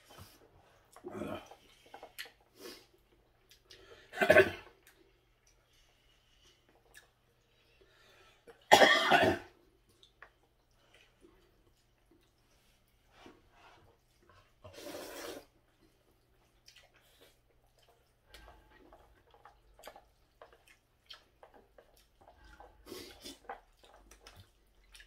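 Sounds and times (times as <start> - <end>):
chewing: 0.0 - 8.7, 9.5 - 25.0
noodles slurped: 13.9 - 25.0.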